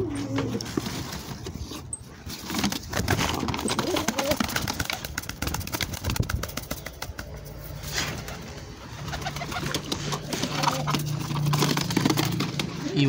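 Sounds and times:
pigeon cooing: 0.0 - 1.3, 3.4 - 4.8, 7.3 - 13.0.

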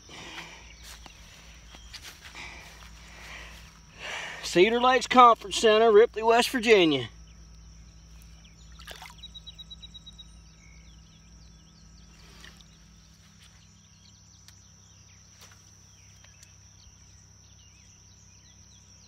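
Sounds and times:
high-pitched insect drone: 0.6 - 15.1.

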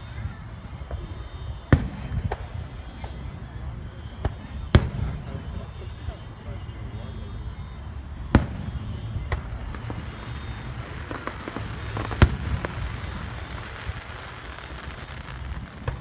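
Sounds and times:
faint firework pops: 0.8 - 3.3, 4.1 - 5.7, 8.3 - 16.0
firework shells booming: 8.3 - 16.0.

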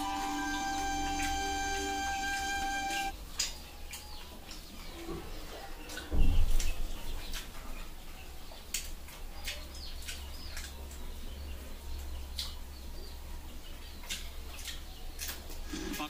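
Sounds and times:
low steady hum: 0.0 - 3.2
faint bird chirps: 0.0 - 8.6.

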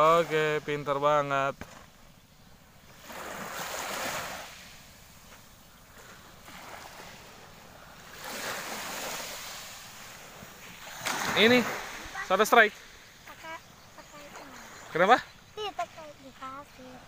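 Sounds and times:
small waves washing onto sand: 0.0 - 17.0.

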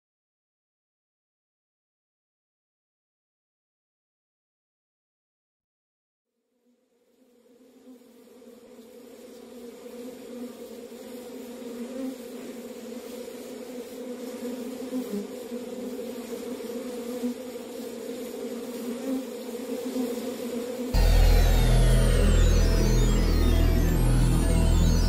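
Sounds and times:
electronic music with deep bass: 21.0 - 25.0
steady buzzing drone: 21.0 - 25.0.

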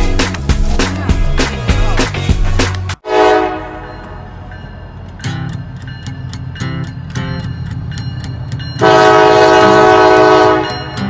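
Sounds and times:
strummed guitar music: 5.2 - 8.8, 9.6 - 11.0.

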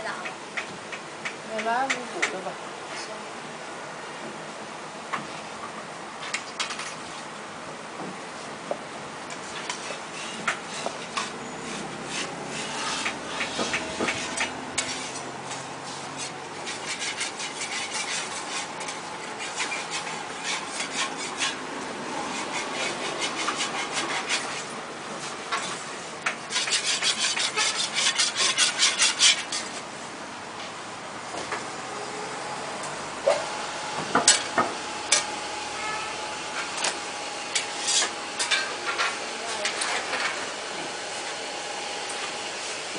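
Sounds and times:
tool scraping a griddle: 9.3 - 29.8, 33.3 - 41.4.

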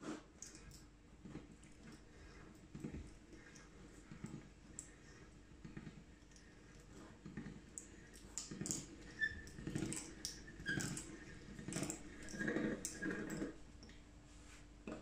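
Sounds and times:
hand-cranked pasta machine rattling: 8.4 - 13.6.

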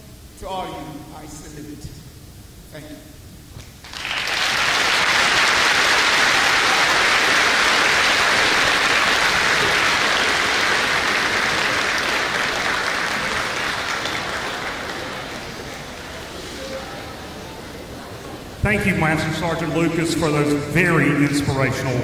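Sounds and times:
large audience applauding: 3.8 - 16.4.

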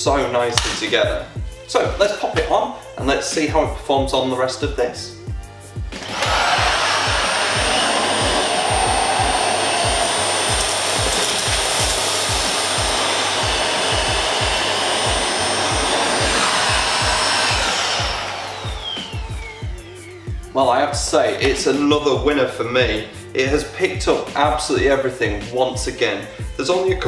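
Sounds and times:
background music with steady beat: 0.0 - 27.0
vacuum cleaner whining: 5.9 - 20.6.

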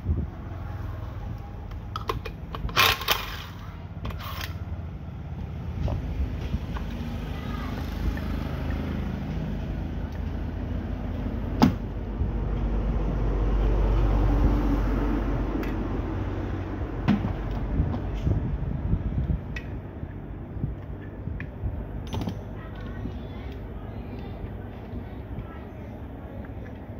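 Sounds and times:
steady low rumble: 0.0 - 26.9
clicks and knocks of parts: 1.7 - 4.6.

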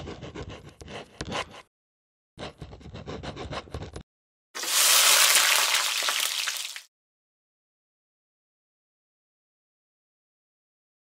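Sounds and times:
pen scratching on paper: 0.0 - 1.7, 2.4 - 4.0.

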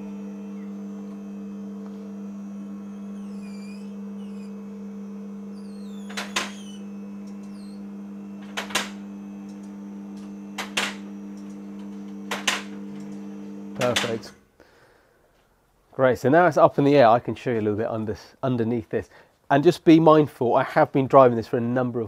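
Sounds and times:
car lift pump motor humming: 0.0 - 14.4.

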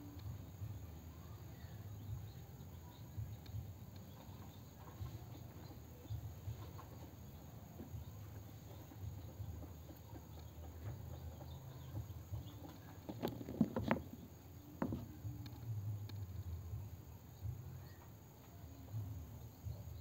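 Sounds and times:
faint ticks: 0.0 - 20.0.

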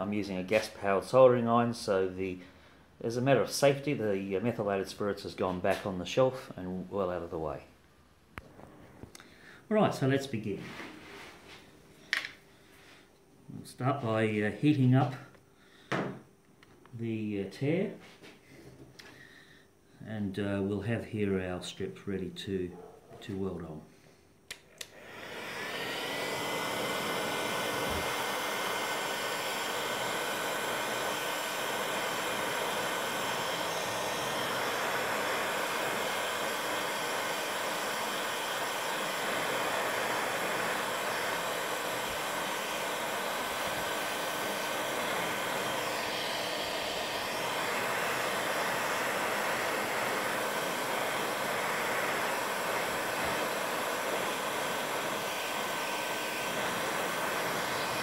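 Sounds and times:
hot-air soldering iron hissing: 24.6 - 58.0.

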